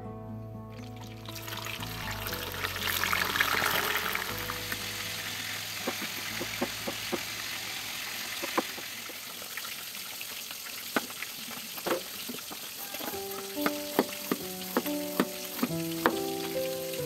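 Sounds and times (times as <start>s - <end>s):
steady hiss: 3.4s - 17.0s
knife tapping cutting board: 13.4s - 16.6s.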